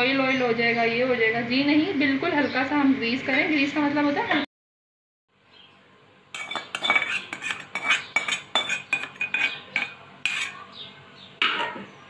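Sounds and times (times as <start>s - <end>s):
metal spoon clinking on a pot: 6.4s - 10.6s.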